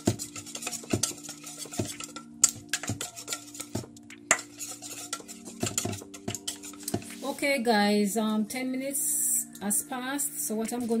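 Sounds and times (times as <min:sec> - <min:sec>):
whisk scraping metal bowl: 0:00.0 - 0:07.4.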